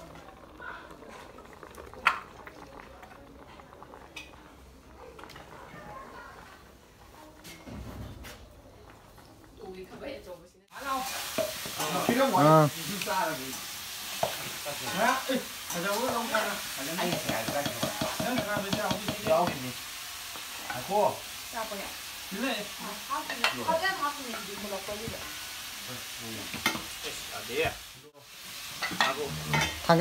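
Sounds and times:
spoon knocking pot sides: 0:17.0 - 0:19.7.

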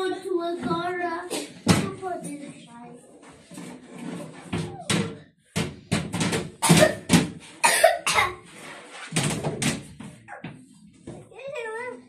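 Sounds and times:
person coughing: 0:07.6 - 0:08.4.

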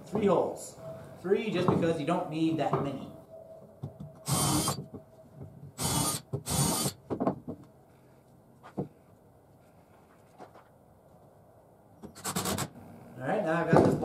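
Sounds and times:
drill drilling into wood: 0:04.2 - 0:04.8, 0:05.8 - 0:07.0.

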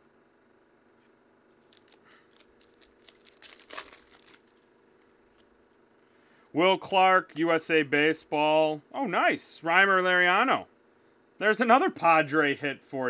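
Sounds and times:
foil wrapper tearing and crinkling: 0:01.6 - 0:04.6.

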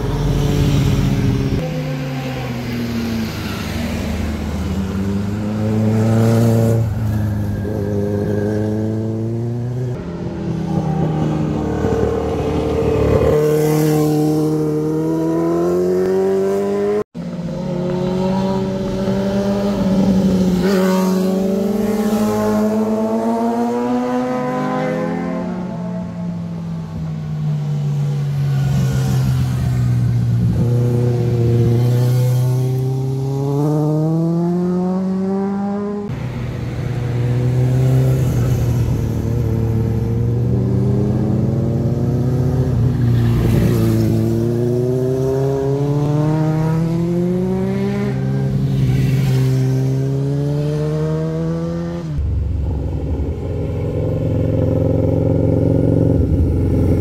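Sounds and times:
motorcycle engines accelerating: 0:00.0 - 0:57.0.

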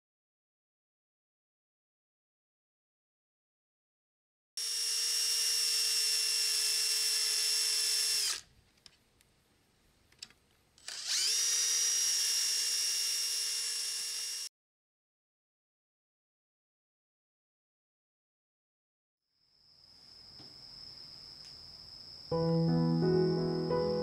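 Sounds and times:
electric sander whining: 0:10.9 - 0:14.5.

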